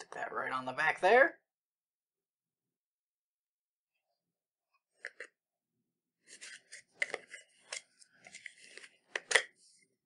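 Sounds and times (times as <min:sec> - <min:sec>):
plastic clicks and scrapes: 0:06.2 - 0:09.7.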